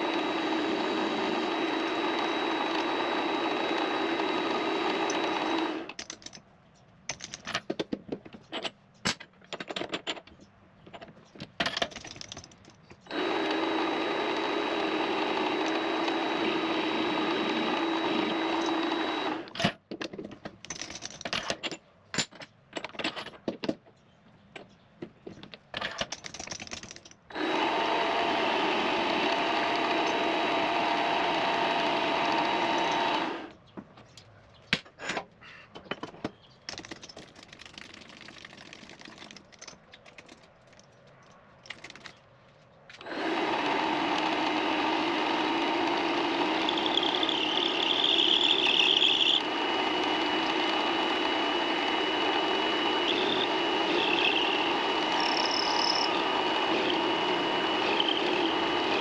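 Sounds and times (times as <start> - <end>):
machine tool motor running: 0.0 - 6.0, 13.0 - 19.6, 27.3 - 33.5, 43.0 - 59.0
handling clicks and knocks: 5.9 - 13.1, 19.6 - 27.3, 33.5 - 43.1.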